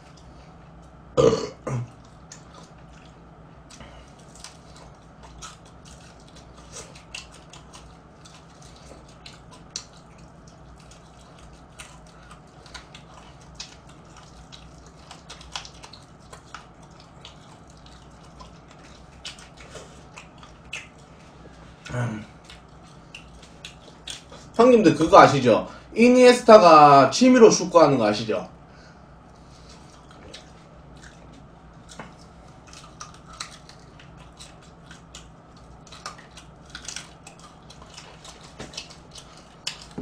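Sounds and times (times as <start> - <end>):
crunchy chewing: 0.0 - 24.8, 29.3 - 40.0
short vocal sound: 21.9 - 22.3.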